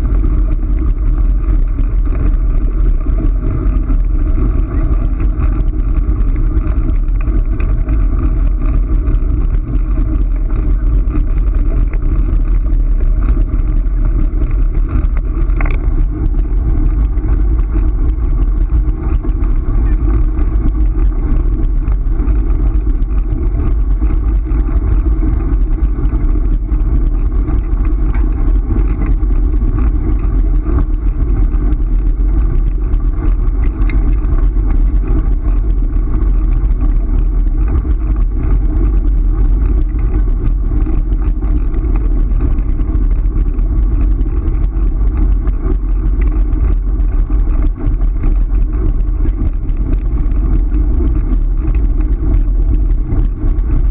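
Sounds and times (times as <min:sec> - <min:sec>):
scooter wheels rolling on gravel: 0:00.0 - 0:52.8.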